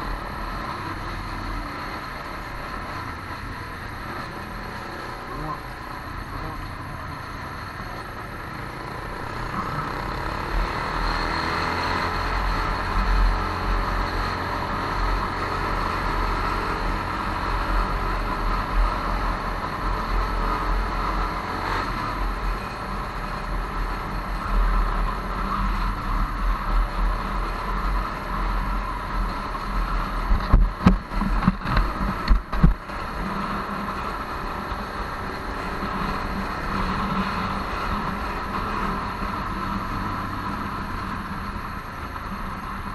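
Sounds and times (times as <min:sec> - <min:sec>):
motorcycle engine running: 0:00.0 - 0:42.9.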